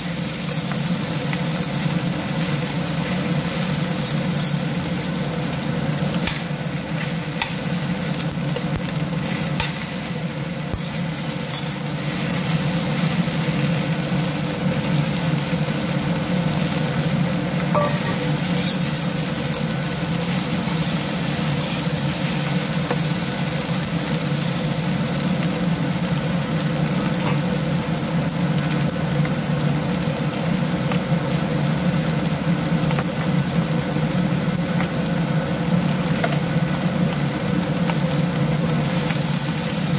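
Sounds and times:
rice sizzling in a wok: 0:00.0 - 0:39.9
metal spatula scraping pan: 0:04.0 - 0:04.7, 0:17.8 - 0:19.8.

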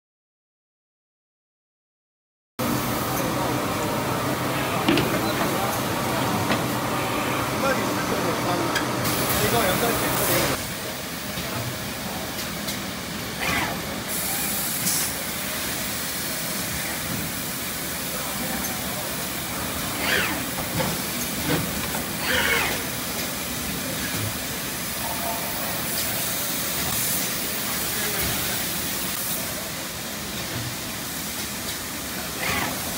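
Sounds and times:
pneumatic air hisses: 0:13.4 - 0:17.7
moulding machine running: 0:18.2 - 0:24.3.

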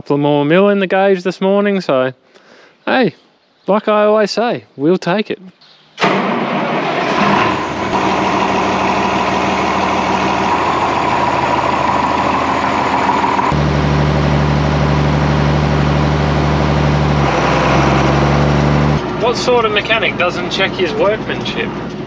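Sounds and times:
tractor diesel engine running: 0:06.0 - 0:22.0.

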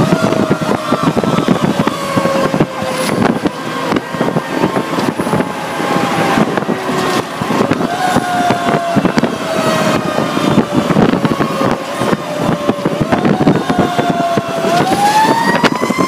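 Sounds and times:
truck engine and road noise: 0:00.0 - 0:16.0.

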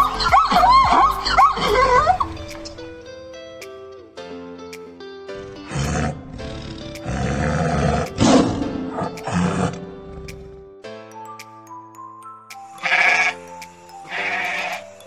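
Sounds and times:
background music: 0:00.0 - 0:15.0
tiger roaring: 0:05.4 - 0:10.7.

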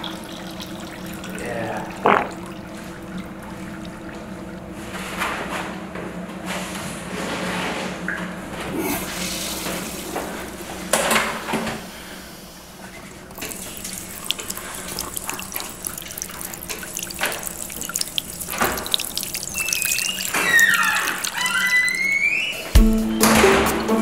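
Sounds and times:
tap water running into basin: 0:00.0 - 0:05.1, 0:08.9 - 0:11.9, 0:12.8 - 0:24.0
hands washing splashing: 0:13.2 - 0:22.1
high squeaks: 0:19.5 - 0:22.8.

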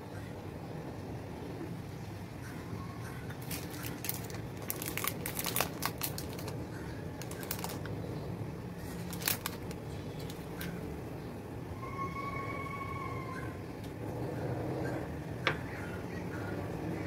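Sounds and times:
wrapper crinkling: 0:03.4 - 0:08.0, 0:08.8 - 0:10.8.

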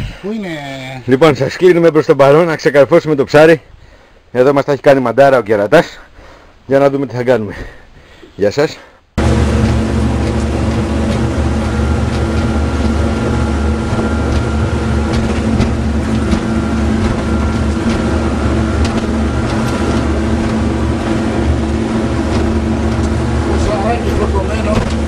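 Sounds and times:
motorboat engine drone: 0:09.2 - 0:25.0.

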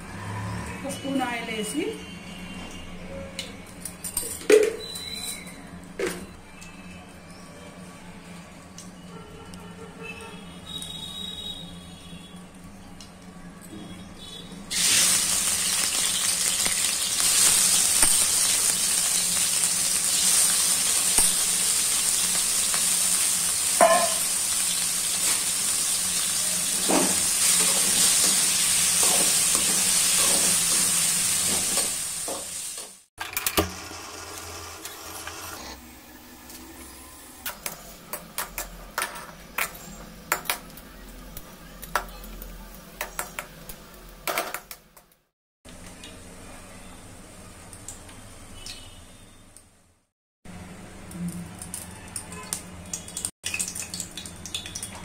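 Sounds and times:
prawns sizzling in hot oil: 0:14.7 - 0:33.1.

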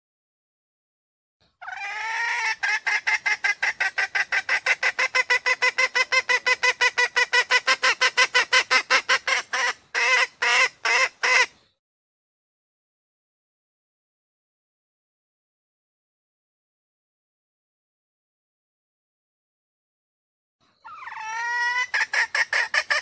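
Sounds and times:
junglefowl hen clucking: 0:01.6 - 0:11.6, 0:20.8 - 0:23.0.

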